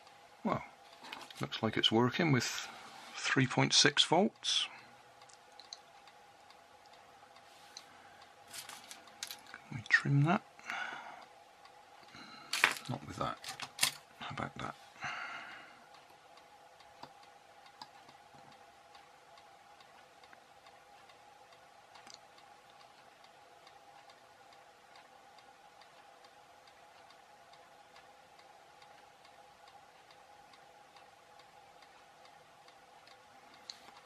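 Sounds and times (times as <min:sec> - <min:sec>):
faint regular ticking: 0:00.0 - 0:34.0
faint steady hum: 0:00.0 - 0:34.0
soft clicks: 0:19.8 - 0:24.2.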